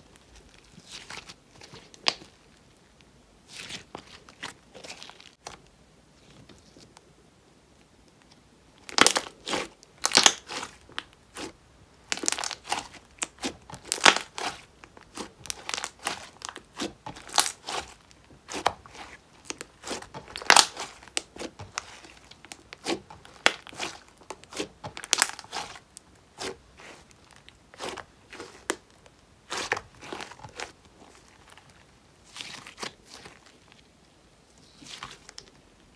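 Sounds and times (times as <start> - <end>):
slime kneading with pops: 0.0 - 5.6, 8.1 - 33.9.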